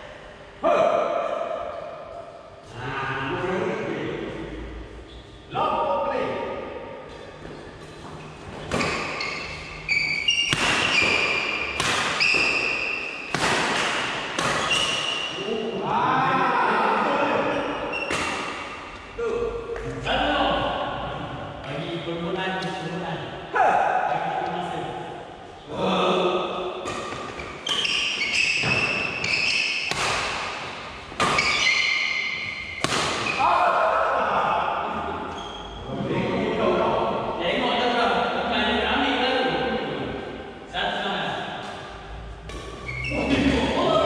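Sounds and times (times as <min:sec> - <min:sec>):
shoes squeaking on floor: 0:07.2 - 0:13.3, 0:14.4 - 0:15.3, 0:17.9 - 0:18.4, 0:27.3 - 0:29.9, 0:31.2 - 0:33.4, 0:35.3 - 0:35.8, 0:42.8 - 0:43.5
racket hitting shuttlecock: 0:10.3 - 0:15.3, 0:17.9 - 0:19.0, 0:26.7 - 0:33.4.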